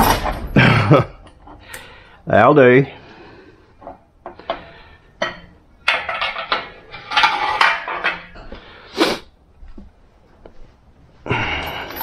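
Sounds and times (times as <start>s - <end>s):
metal parts clinking and clattering: 0.0s - 1.7s, 5.2s - 8.6s, 11.6s - 12.0s.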